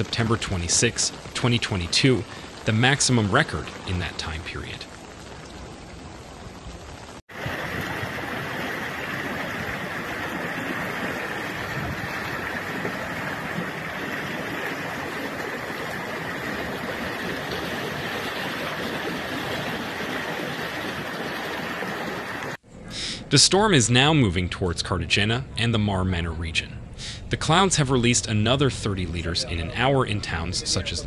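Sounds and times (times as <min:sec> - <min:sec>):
floodwater rushing: 0:00.0 - 0:22.6.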